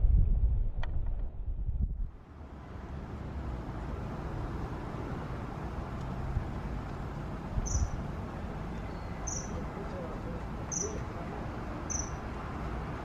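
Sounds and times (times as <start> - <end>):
distant traffic rumble: 0.0 - 13.0
high-pitched bird call: 7.6 - 8.0, 8.7 - 9.6, 10.7 - 11.0, 11.9 - 12.2.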